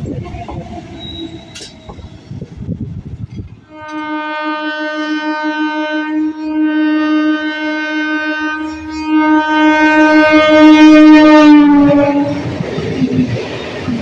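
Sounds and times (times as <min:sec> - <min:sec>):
passing train rumble: 0:00.0 - 0:14.0
train horn long note: 0:03.6 - 0:12.5.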